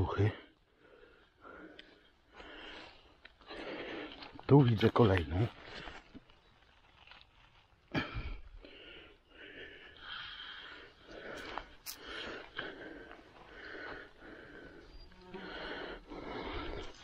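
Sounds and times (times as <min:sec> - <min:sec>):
person breathing: 0:00.4 - 0:04.4, 0:07.9 - 0:17.0.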